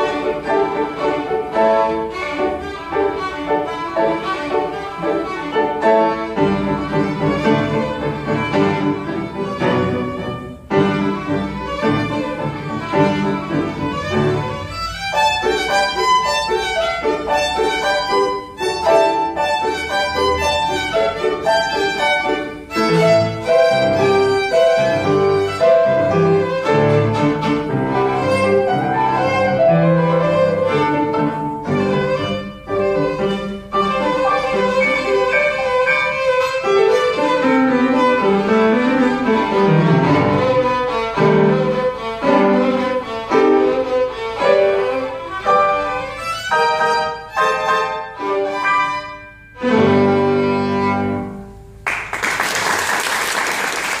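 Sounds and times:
violin: 0.0s - 51.6s
piano accompaniment: 0.0s - 54.0s
applause: 51.8s - 54.0s.

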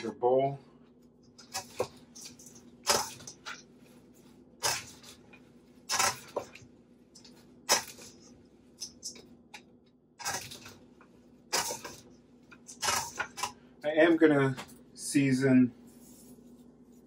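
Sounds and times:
utensils scraping metal bowl: 11.5s - 13.6s.

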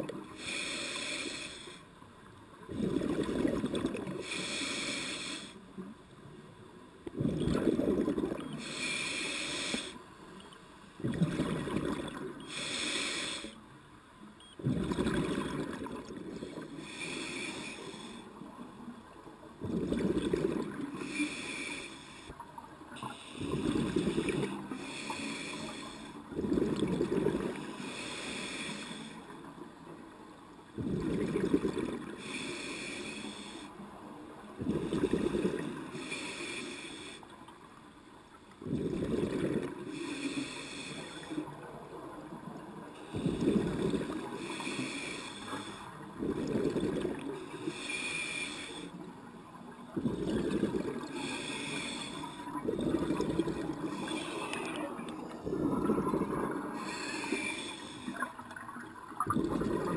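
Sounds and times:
diver inhaling through regulator: 0.3s - 1.9s, 4.2s - 5.6s, 7.2s - 10.0s, 11.3s - 13.6s, 16.4s - 18.4s, 19.7s - 22.4s, 23.0s - 29.3s, 32.2s - 33.8s, 34.6s - 37.3s, 38.6s - 41.5s, 43.0s - 49.0s, 50.0s - 58.4s
exhaled bubbles rushing: 7.2s - 8.5s, 11.0s - 12.2s, 50.0s - 51.1s, 52.6s - 54.0s, 55.4s - 56.8s, 58.6s - 59.9s.

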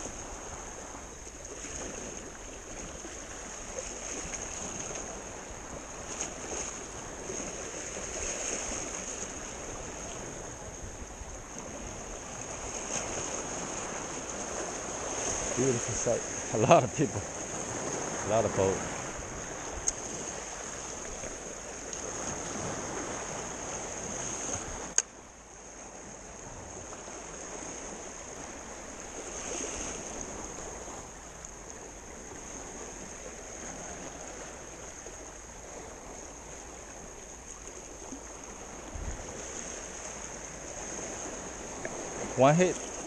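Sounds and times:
sea waves lapping around rocks: 0.0s - 43.0s
sharp click: 24.9s - 25.1s.

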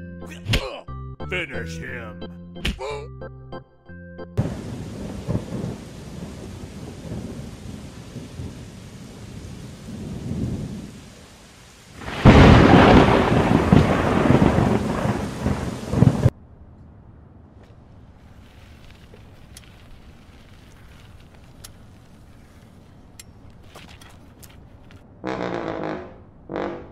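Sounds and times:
rain falling: 4.4s - 16.3s, 18.2s - 25.0s
thunder rumbling: 4.4s - 16.4s.

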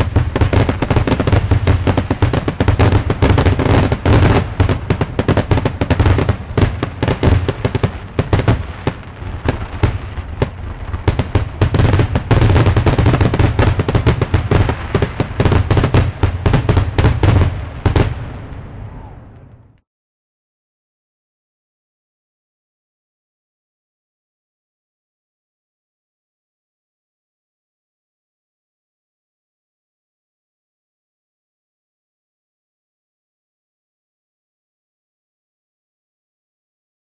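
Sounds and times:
fireworks bursting: 0.0s - 19.8s.

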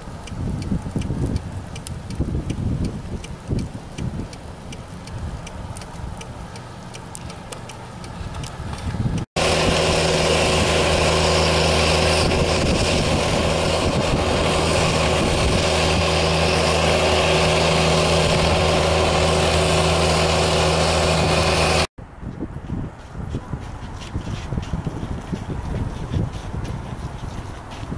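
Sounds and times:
utility vehicle engine running: 0.0s - 21.9s
light ticks: 0.2s - 9.3s.

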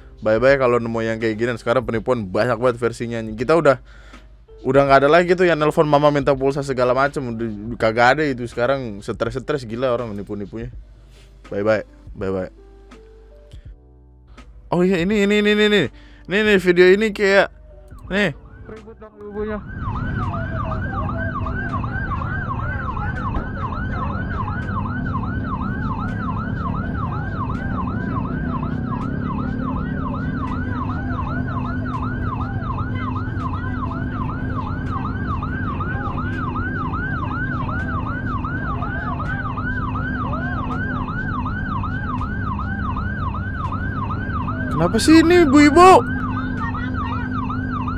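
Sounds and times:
ambulance siren yelping: 14.8s - 47.9s
low rumble of traffic: 17.4s - 47.9s.

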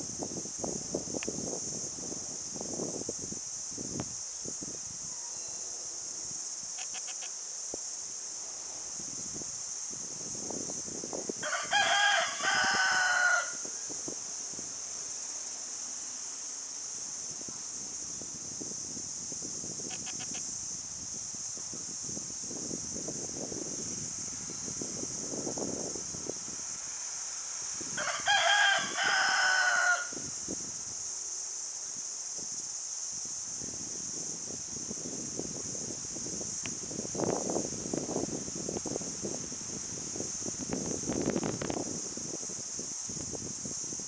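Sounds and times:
rooster crowing: 11.4s - 13.8s, 27.9s - 30.3s.

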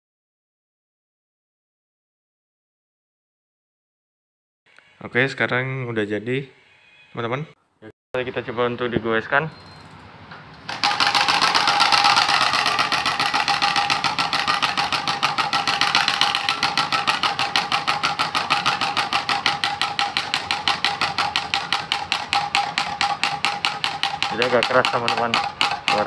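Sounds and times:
card flapping in bicycle spokes: 10.6s - 26.0s.

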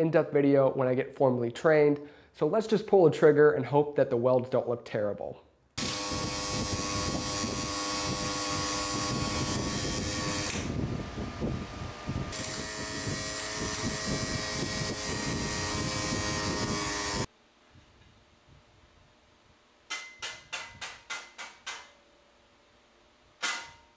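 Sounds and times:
welding arc buzzing hiss: 5.8s - 17.3s.

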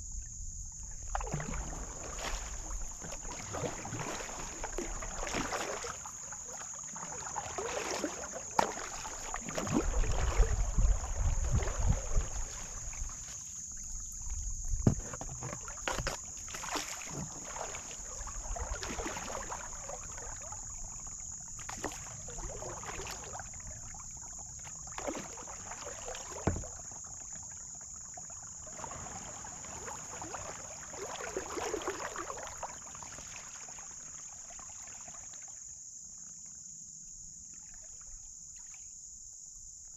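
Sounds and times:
paddle swishing and splashing: 0.8s - 35.6s
paddle knocking: 7.2s - 13.3s, 13.9s - 17.9s, 24.6s - 27.0s
wind rumble on microphone: 9.6s - 13.2s, 13.8s - 15.1s.

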